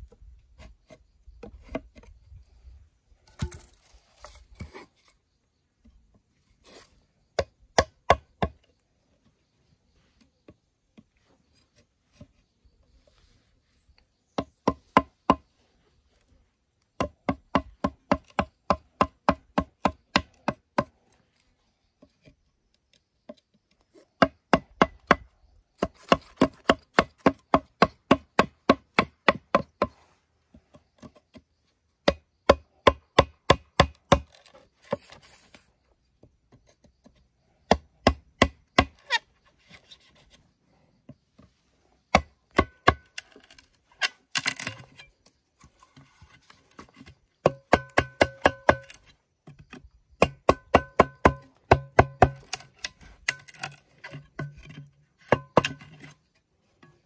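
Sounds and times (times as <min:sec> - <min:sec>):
chopping bamboo: 0:07.4 - 0:08.7, 0:14.3 - 0:15.4, 0:17.0 - 0:20.9, 0:24.1 - 0:30.0, 0:32.0 - 0:35.5, 0:37.6 - 0:39.2, 0:42.1 - 0:45.0, 0:46.7 - 0:56.2.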